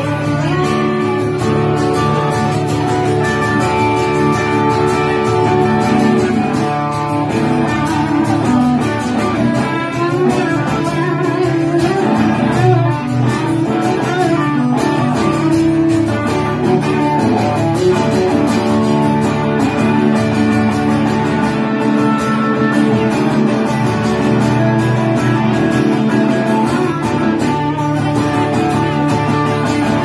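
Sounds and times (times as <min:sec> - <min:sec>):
acoustic guitar strumming chords: 0:00.0 - 0:30.0
electric guitar lead line: 0:00.0 - 0:30.0.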